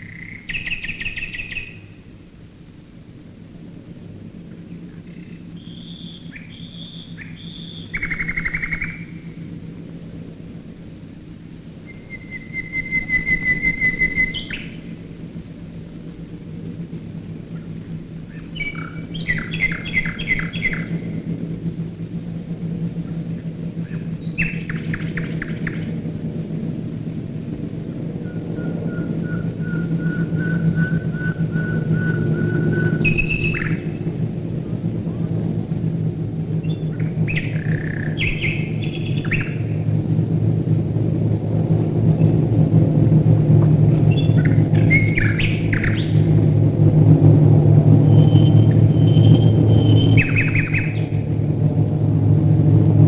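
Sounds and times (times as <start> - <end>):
nightingale singing: 0.0 - 2.1, 4.6 - 9.4, 11.8 - 15.0, 17.6 - 21.3, 23.1 - 26.1, 28.2 - 34.1, 36.5 - 39.8, 43.9 - 46.4, 48.0 - 51.3
drone of bomber engines overhead: 0.0 - 53.0.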